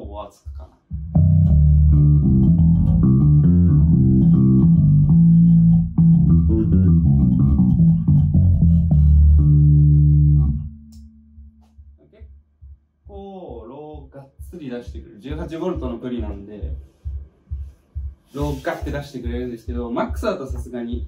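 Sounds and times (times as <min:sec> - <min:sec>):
electric bass riff: 0:00.9 - 0:11.9.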